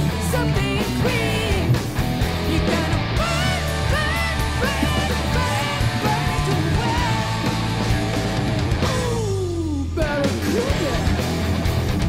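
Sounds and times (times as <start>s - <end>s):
person singing: 0.0s - 1.8s, 2.4s - 7.6s, 8.8s - 11.1s
rock music: 0.0s - 12.0s.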